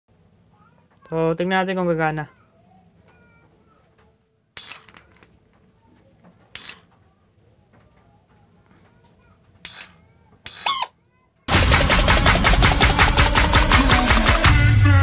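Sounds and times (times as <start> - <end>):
loud music: 11.5 - 15.0.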